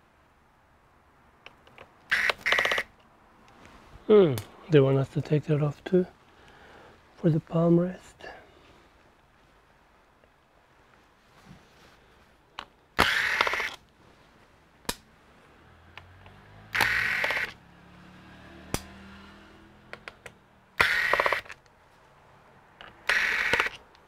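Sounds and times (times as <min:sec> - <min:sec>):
sharp clicks: 0:01.4 - 0:03.1, 0:12.6 - 0:13.8, 0:16.0 - 0:17.6, 0:18.7 - 0:18.9, 0:19.9 - 0:21.7, 0:22.8 - 0:24.0
electric screwdriver whirring: 0:02.1 - 0:02.9, 0:13.0 - 0:13.8, 0:16.7 - 0:17.6, 0:20.8 - 0:21.6, 0:23.0 - 0:23.8.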